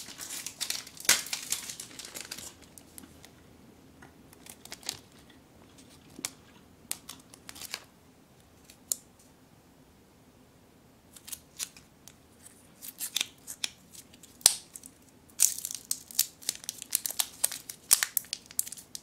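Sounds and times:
plastic wrappers crinkling: 0.0 - 3.3, 4.4 - 7.9, 13.0 - 19.0.

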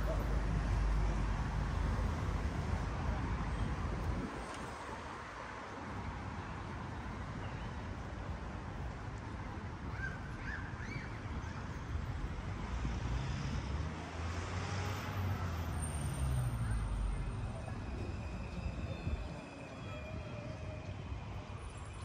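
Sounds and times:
city street traffic: 0.0 - 22.0
vehicle passing with low rumble: 12.1 - 19.4.

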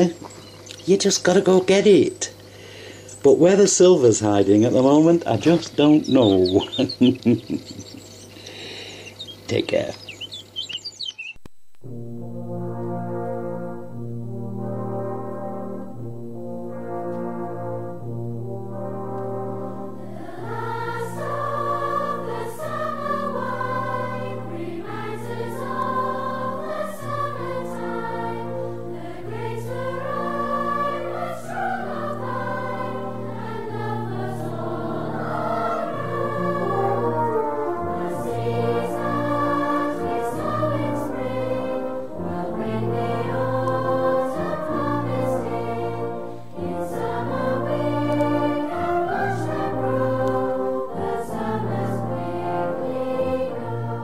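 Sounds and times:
choir singing held notes: 0.0 - 10.7, 16.7 - 54.0
orchestral accompaniment with brass: 11.8 - 54.0.

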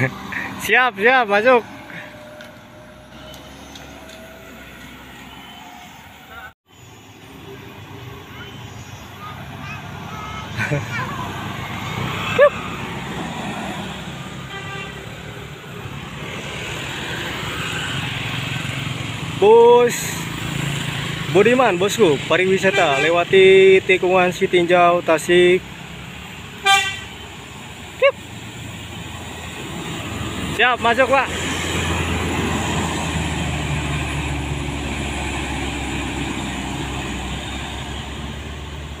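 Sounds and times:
small motorbike engines: 0.0 - 26.6
pickup truck driving past: 9.3 - 22.4, 27.5 - 39.0.

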